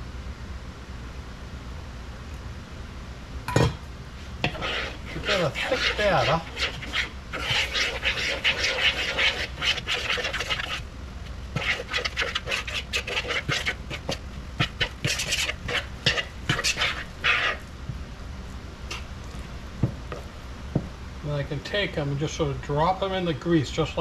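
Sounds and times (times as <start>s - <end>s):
low steady hum: 0.0s - 24.0s
batter stirred in plastic bowl: 4.3s - 17.8s.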